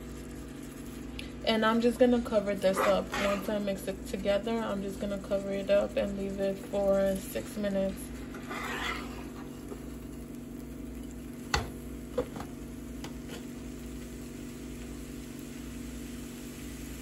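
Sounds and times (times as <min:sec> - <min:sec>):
steady low hum: 0:00.0 - 0:17.0
metal spatula stirring vegetables in pan: 0:02.6 - 0:03.6, 0:08.2 - 0:09.6.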